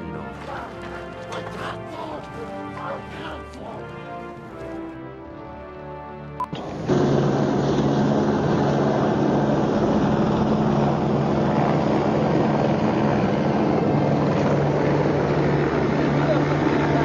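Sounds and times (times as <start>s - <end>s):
helicopter engine and rotor drone: 6.5s - 17.0s.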